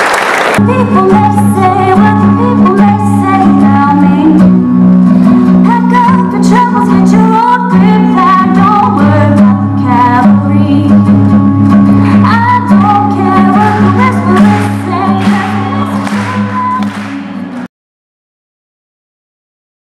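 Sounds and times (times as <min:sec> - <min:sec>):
woman singing into a microphone: 0:00.6 - 0:04.6, 0:05.5 - 0:11.2, 0:12.0 - 0:16.8
acoustic guitar chords: 0:00.6 - 0:17.7.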